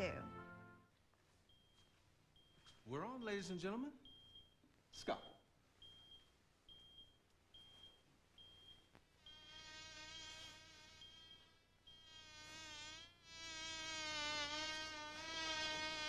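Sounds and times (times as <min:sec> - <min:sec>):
heart monitor beeping: 0:01.5 - 0:12.3
electric buzzing whine: 0:09.3 - 0:16.0.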